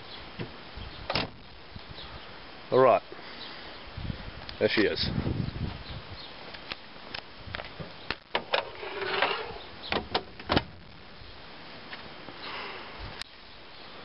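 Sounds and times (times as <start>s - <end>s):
rubbing squeak: 8.6s - 9.7s.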